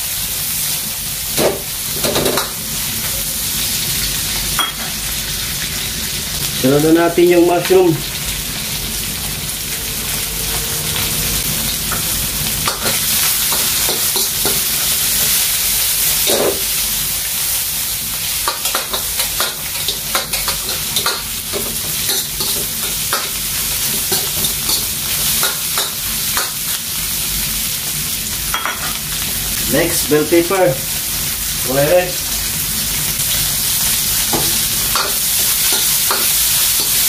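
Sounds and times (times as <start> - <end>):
vegetables sizzling in hot oil: 0.0 - 37.0
metal spatula scraping wok: 8.6 - 15.2.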